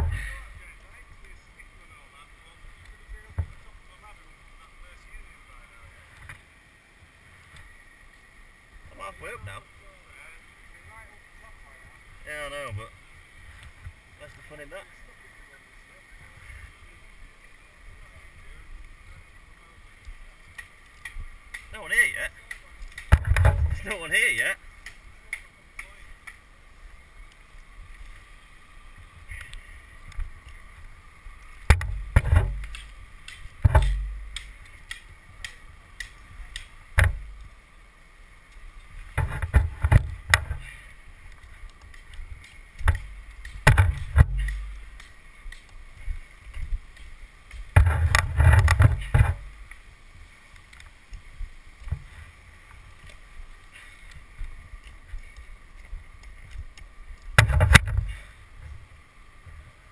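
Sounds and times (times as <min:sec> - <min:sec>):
gear striking tree trunk: 0:20.5 - 0:26.4, 0:31.5 - 0:37.5, 0:39.0 - 0:49.8, 0:54.8 - 0:58.3
climbing spikes knocking into bark: 0:22.4 - 0:24.2, 0:31.6 - 0:37.5, 0:39.0 - 0:49.8, 0:54.8 - 0:58.2.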